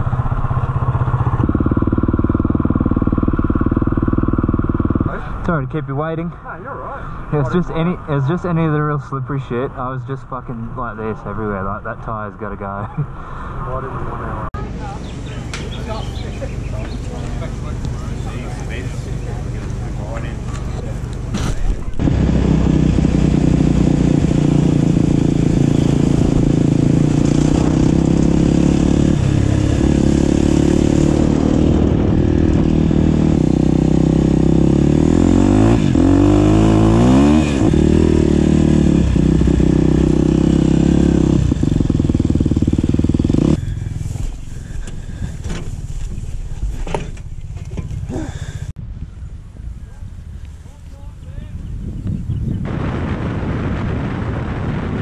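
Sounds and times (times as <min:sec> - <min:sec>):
dirt bike engine running: 0:00.0 - 0:05.5, 0:14.6 - 0:48.7.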